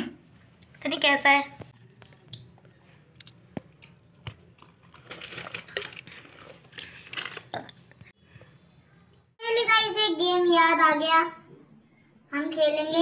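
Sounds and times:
plastic bottle crinkling: 0:04.5 - 0:07.7.

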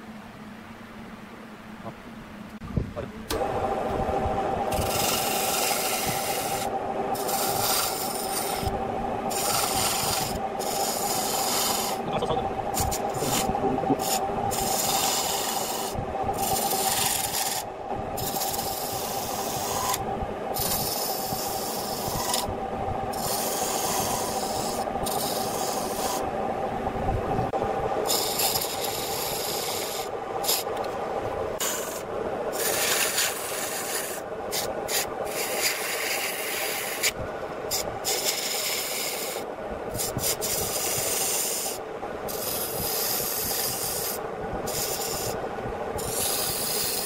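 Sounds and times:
lathe humming: 0:03.2 - 0:47.0
chisel scraping wood on a lathe: 0:04.7 - 0:12.1, 0:12.7 - 0:20.0, 0:20.6 - 0:22.5, 0:23.1 - 0:26.3, 0:28.0 - 0:30.9, 0:31.6 - 0:45.4, 0:46.0 - 0:47.0.

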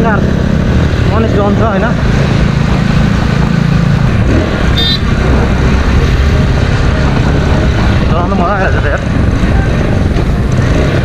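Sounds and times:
motorcycle engine running: 0:00.0 - 0:11.0
short high beep: 0:04.8 - 0:05.1.

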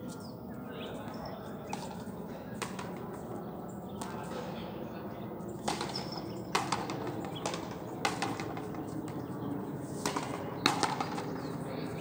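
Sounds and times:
rubber ball struck by rackets: 0:05.6 - 0:08.8, 0:10.0 - 0:11.3.

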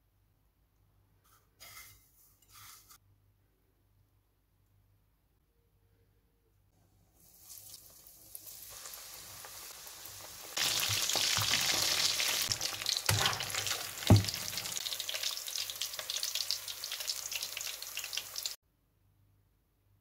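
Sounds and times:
chicken deep-frying in oil: 0:07.1 - 0:18.6
skimmer knocking against pan: 0:13.1 - 0:14.7.

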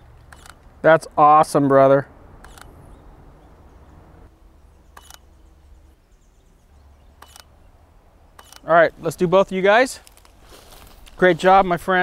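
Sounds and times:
outdoor background noise: 0:00.0 - 0:12.0
camera shutter firing: 0:00.3 - 0:00.6, 0:02.4 - 0:02.7, 0:05.0 - 0:05.3, 0:07.2 - 0:07.5, 0:08.4 - 0:08.7.

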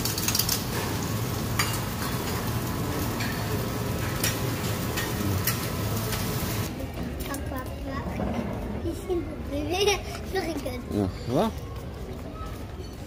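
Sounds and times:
food sizzling on griddle: 0:00.0 - 0:06.7.

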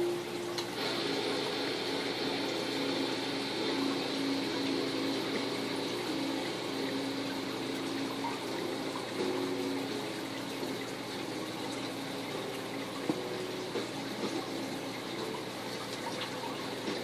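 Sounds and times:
water trickling from aquarium filter: 0:00.0 - 0:17.0.

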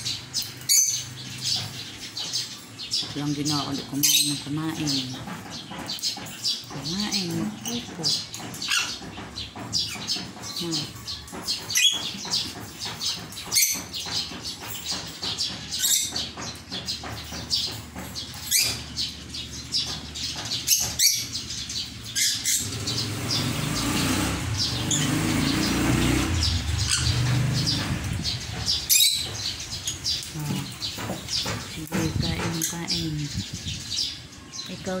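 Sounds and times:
parrots chirping and squawking: 0:00.0 - 0:35.0.

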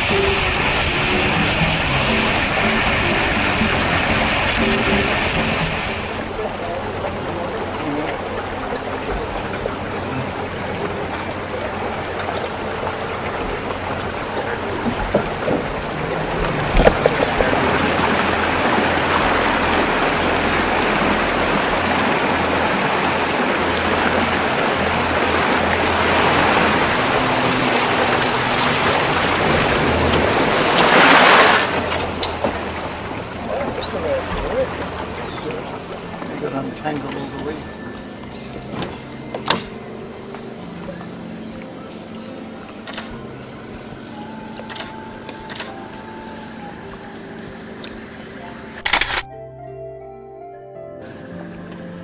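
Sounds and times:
outboard motor running: 0:00.0 - 0:49.2
water rushing past boat hull: 0:00.0 - 0:49.2
sharp click: 0:38.8 - 0:39.7, 0:48.8 - 0:49.3.

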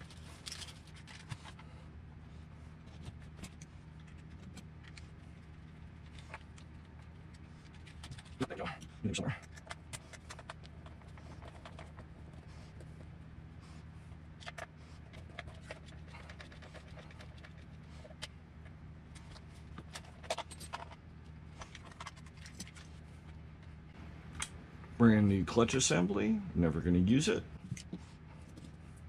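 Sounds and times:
plastic parts clicking and rattling: 0:00.0 - 0:01.6
steady low hum: 0:00.0 - 0:29.0.

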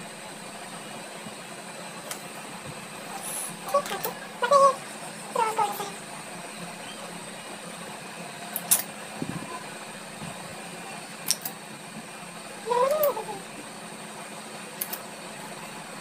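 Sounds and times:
electric fan humming: 0:00.0 - 0:16.0
short sharp clicks: 0:08.5 - 0:08.9, 0:11.2 - 0:11.6.

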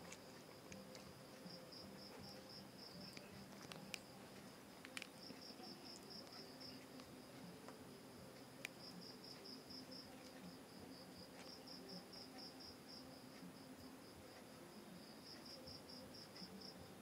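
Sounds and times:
insect chirping: 0:00.0 - 0:07.0.

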